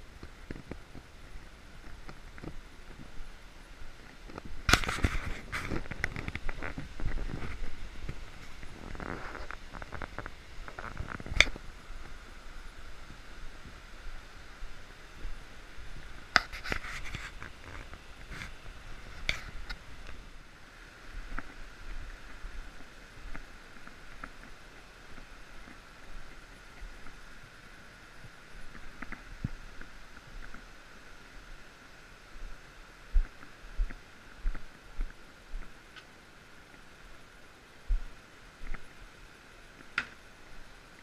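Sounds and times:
camera handling noise: 4.7s - 6.7s.

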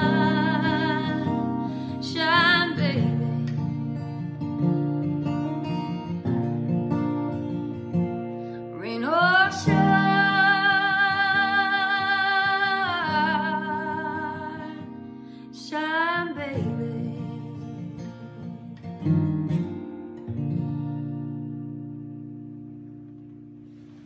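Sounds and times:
woman singing: 0.0s - 4.3s, 8.6s - 19.1s
strummed acoustic guitar: 0.0s - 24.0s.

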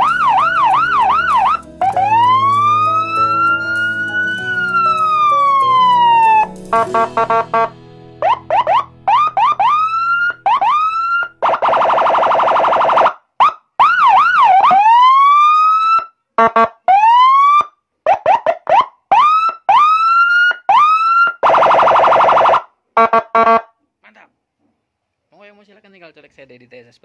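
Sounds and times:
siren rising sweeps: 0.0s - 13.1s, 13.8s - 16.1s, 19.1s - 22.6s
siren warbling wail: 0.0s - 13.1s, 13.8s - 16.1s, 19.1s - 22.6s
police siren whoops: 0.0s - 16.1s, 16.9s - 22.6s
pulsed siren bursts: 0.0s - 22.7s
buzzing horn blasts: 6.7s - 10.0s.

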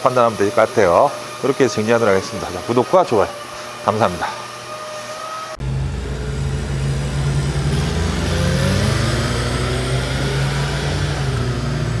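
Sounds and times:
forklift engine running: 5.6s - 12.0s.

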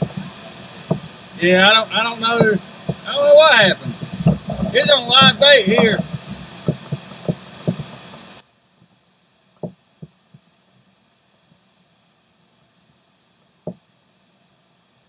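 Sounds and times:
steady rushing background: 0.0s - 8.5s.

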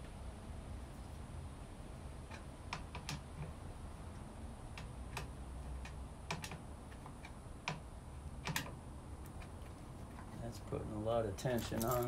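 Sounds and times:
clicks and taps of hand tools: 4.8s - 7.8s.

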